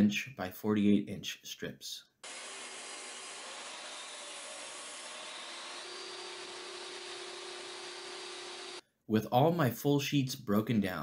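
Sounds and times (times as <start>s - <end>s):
table saw ripping board: 2.2s - 8.8s.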